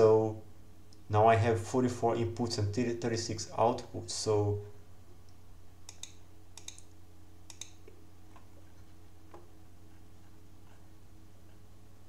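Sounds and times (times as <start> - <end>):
low steady hum: 0.0 - 12.0
computer mouse clicking: 5.9 - 6.9, 7.5 - 8.5.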